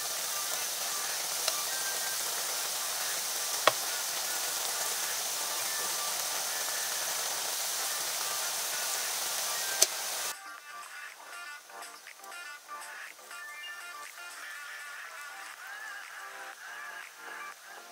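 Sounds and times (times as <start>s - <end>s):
fries sizzling in hot oil: 0.0s - 10.4s.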